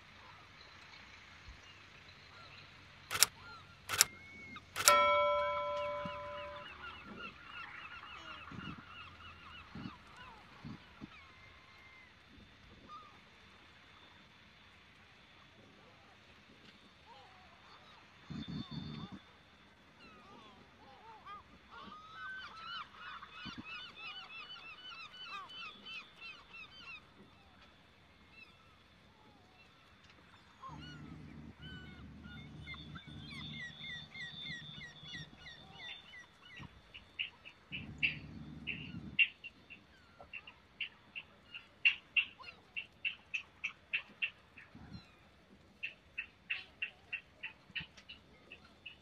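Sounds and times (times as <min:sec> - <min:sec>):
low steady drone: 0:04.7 - 0:07.4, 0:28.6 - 0:40.6
short sharp bird chirps: 0:04.8 - 0:07.2
birds squawking: 0:30.6 - 0:39.4.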